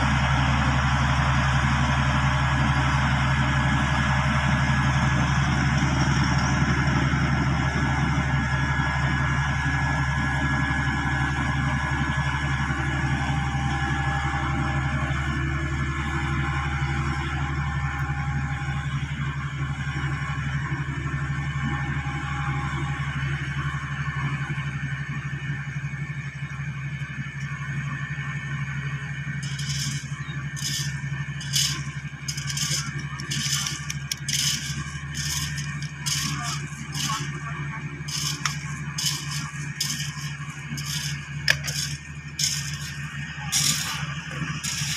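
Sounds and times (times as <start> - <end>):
diesel engine humming: 0.0 - 44.9
shovel scraping gravel: 29.4 - 44.9.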